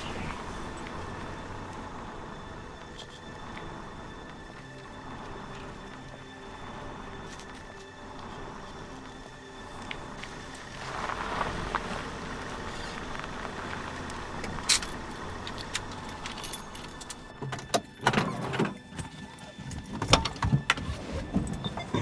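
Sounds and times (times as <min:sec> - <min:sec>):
car engine echoing: 0:00.0 - 0:17.5.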